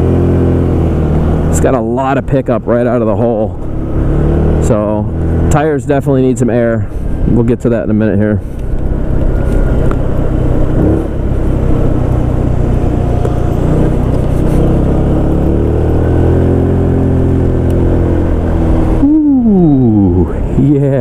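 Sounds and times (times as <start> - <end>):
road and wind noise: 0.0 - 21.0
scooter engine running: 8.7 - 20.1.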